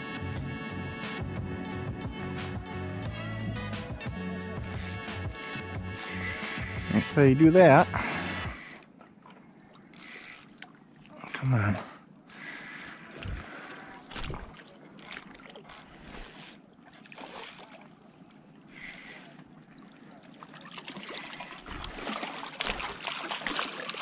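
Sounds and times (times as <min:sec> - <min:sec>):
fishing reel ticking: 0:04.6 - 0:09.0, 0:09.9 - 0:14.4, 0:15.0 - 0:19.4, 0:20.9 - 0:22.0
fish splashing in water: 0:12.4 - 0:16.0, 0:18.7 - 0:24.0.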